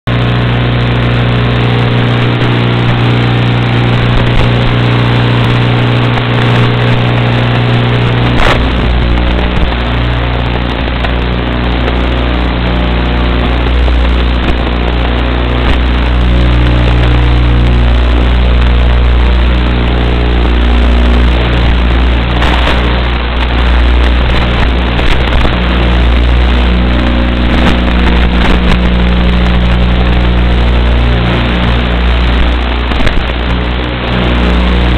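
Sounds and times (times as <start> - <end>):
electric ducted fan rushing: 0.1 - 34.9
electrical hum with hiss: 0.1 - 34.9.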